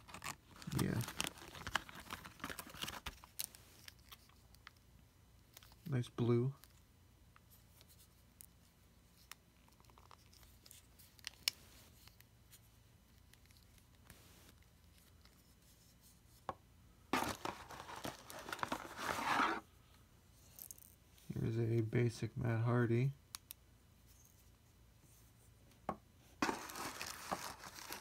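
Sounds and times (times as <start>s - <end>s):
plastic bag crinkling: 0.0s - 3.5s, 17.2s - 19.6s, 26.4s - 28.0s.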